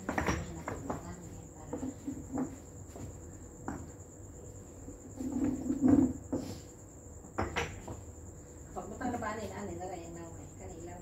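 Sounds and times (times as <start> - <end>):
concrete blocks knocking and scraping: 0.0 - 2.6, 7.3 - 8.1
cricket trilling: 0.0 - 11.0
clay pots set down: 7.4 - 8.0.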